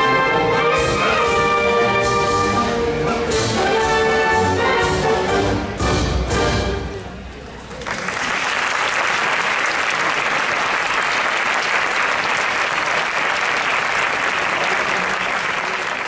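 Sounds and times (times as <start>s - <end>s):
audience applauding: 7.7s - 16.0s.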